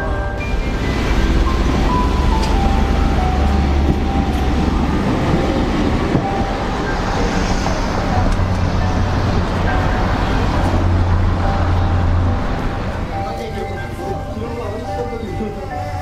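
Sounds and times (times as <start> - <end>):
cars and streetcar passing: 0.0 - 16.0
soft piano music: 0.0 - 16.0.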